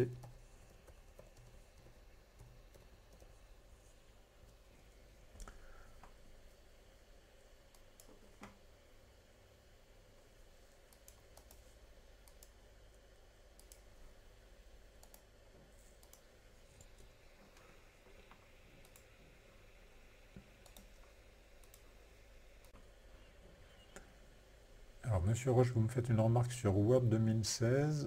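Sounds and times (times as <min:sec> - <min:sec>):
keyboard typing clicks: 0:00.0 - 0:03.4, 0:10.9 - 0:12.6, 0:13.5 - 0:13.9, 0:15.0 - 0:15.3, 0:16.0 - 0:17.1, 0:18.8 - 0:19.1, 0:20.5 - 0:21.0, 0:21.6 - 0:22.0
low steady hum: 0:00.0 - 0:28.0.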